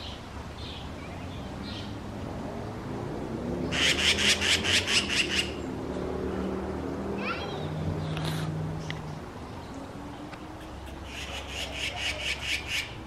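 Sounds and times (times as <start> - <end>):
magpie harsh calls: 3.7 - 5.6, 10.6 - 13.0.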